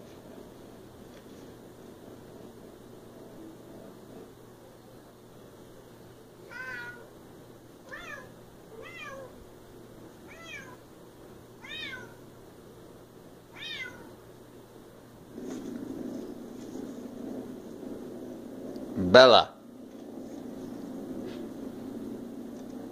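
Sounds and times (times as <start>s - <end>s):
cat meowing: 6.5s - 7.1s, 7.8s - 9.4s, 10.3s - 10.8s, 11.6s - 12.2s, 13.5s - 14.2s.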